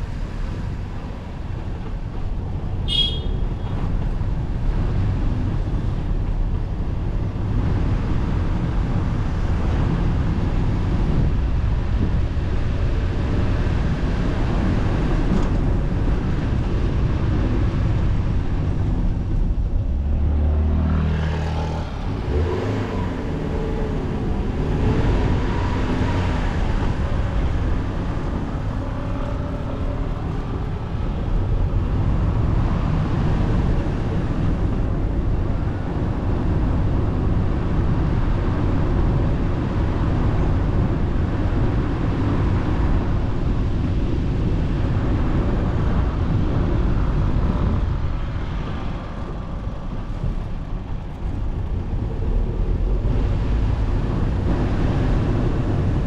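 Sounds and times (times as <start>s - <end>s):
car driving on road: 0.0s - 56.0s.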